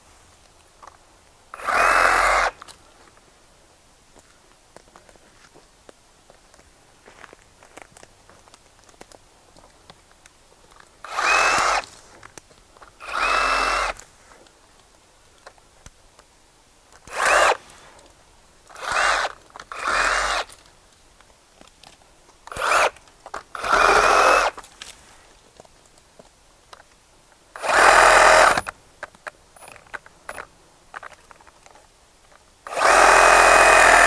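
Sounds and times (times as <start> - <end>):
reciprocating saw cutting branches: 1.6 - 2.6, 11.1 - 11.9, 13.0 - 14.0, 17.1 - 17.7, 18.7 - 20.5, 22.5 - 23.0, 23.6 - 24.6, 27.6 - 28.7, 32.7 - 34.0.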